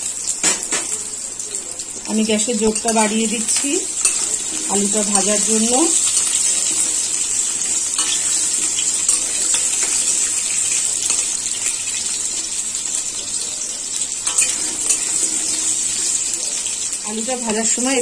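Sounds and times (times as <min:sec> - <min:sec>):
potatoes sizzling in oil: 0:00.0 - 0:18.0
metal spatula scraping: 0:02.6 - 0:12.1, 0:14.2 - 0:16.4.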